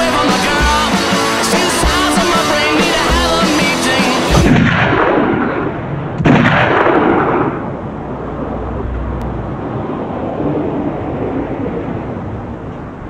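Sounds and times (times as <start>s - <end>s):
low rushing noise: 0.0s - 13.0s
handgun shot with echo: 4.3s - 5.6s.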